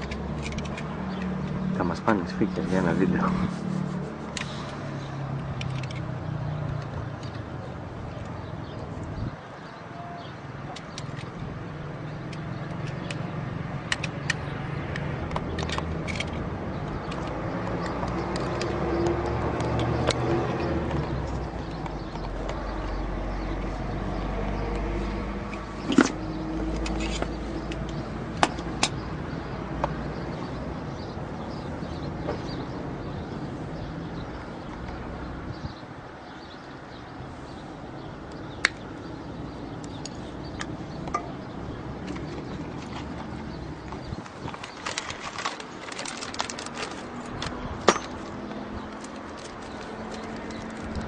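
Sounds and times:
traffic rumble: 0:00.0 - 0:51.0
sharp clicks: 0:12.3 - 0:20.3.

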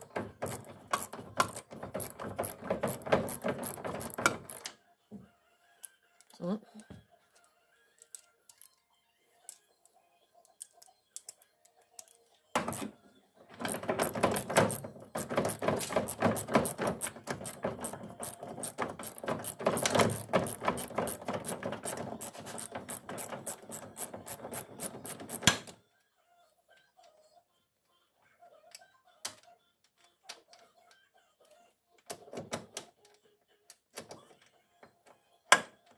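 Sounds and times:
ratchet wrench clicking: 0:00.5 - 0:04.7, 0:13.7 - 0:25.5.

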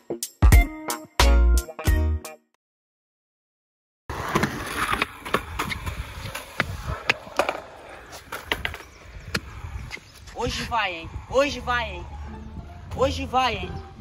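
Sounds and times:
skateboard clacking on concrete: 0:04.2 - 0:09.6.

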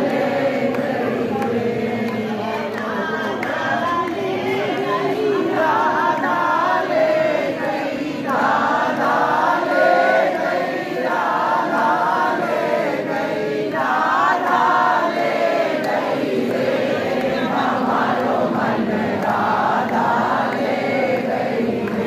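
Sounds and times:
crowd noise: 0:00.0 - 0:22.0
many voices chanting: 0:00.0 - 0:22.0.

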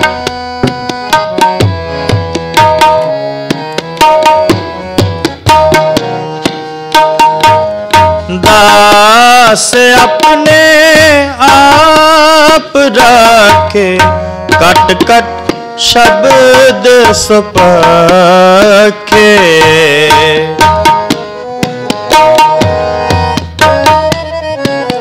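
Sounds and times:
harmonium melody: 0:00.0 - 0:25.0
tabla rhythm: 0:00.0 - 0:25.0
man singing: 0:05.5 - 0:21.2.

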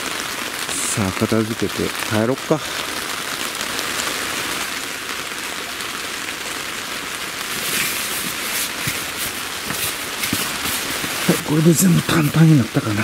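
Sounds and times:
rain on tent fabric: 0:00.0 - 0:13.0
foam mat rustling: 0:07.4 - 0:12.6.

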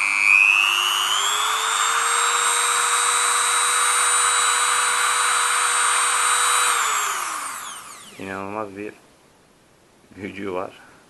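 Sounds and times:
rotary tool motor whine: 0:00.0 - 0:08.2.

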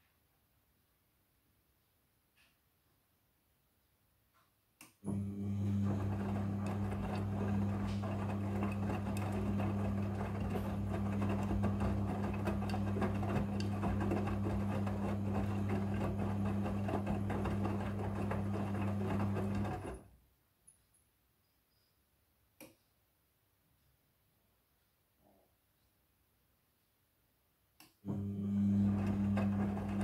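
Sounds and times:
washing machine motor hum: 0:05.0 - 0:20.1, 0:28.0 - 0:30.0.

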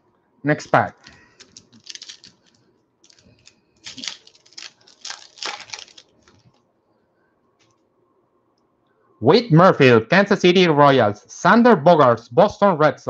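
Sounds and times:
foil wrapper tearing and crinkling: 0:01.0 - 0:06.6.

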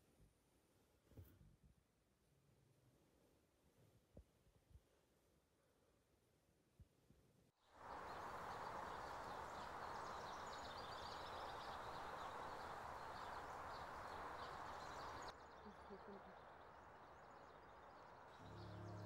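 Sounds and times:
small birds chirping: 0:07.6 - 0:19.0.

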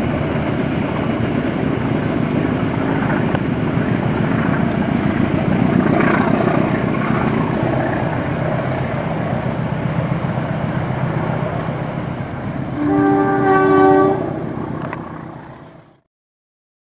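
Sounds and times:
train coaches rumbling on rails: 0:00.0 - 0:16.0
locomotive horn blast: 0:12.7 - 0:14.9.

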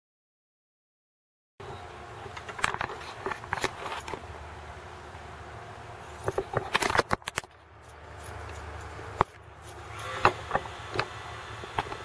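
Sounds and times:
steady low hum: 0:01.6 - 0:12.0
scissors snipping: 0:06.3 - 0:10.1.

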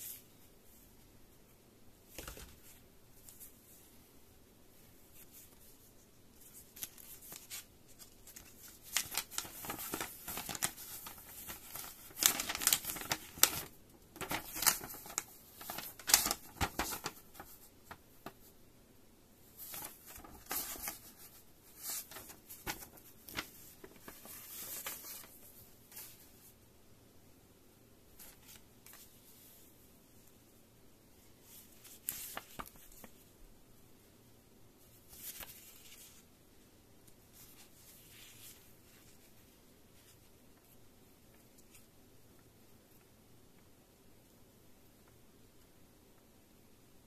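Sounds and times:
paper rustling and crackling: 0:06.4 - 0:18.5, 0:19.6 - 0:26.5, 0:31.4 - 0:33.2, 0:35.1 - 0:36.2.

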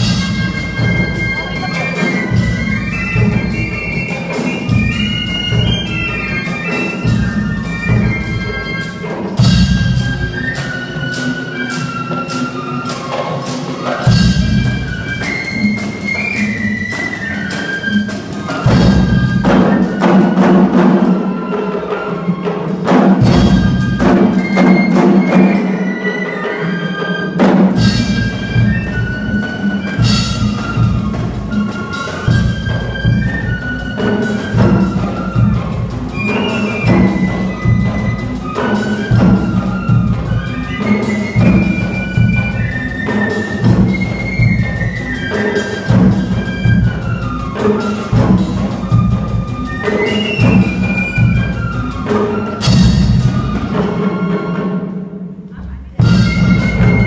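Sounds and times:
brass band playing: 0:00.0 - 0:57.0
drum hits: 0:22.9 - 0:25.6.

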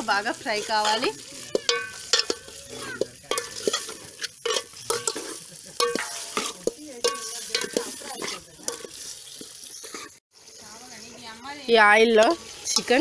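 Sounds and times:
chicken sizzling in oil: 0:00.0 - 0:13.0
spoon scraping and knocking pot: 0:00.5 - 0:10.1.

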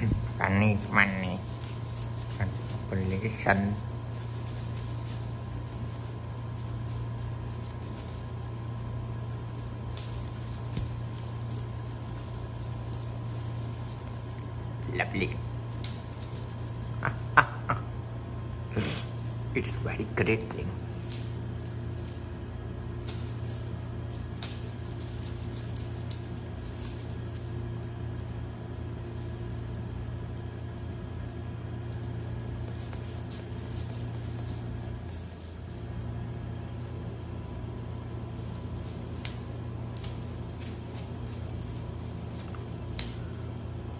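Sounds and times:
cat toy rustling and tapping: 0:00.0 - 0:17.4, 0:20.8 - 0:28.3, 0:29.0 - 0:37.0, 0:38.3 - 0:43.6
steady low hum: 0:00.0 - 0:43.9.

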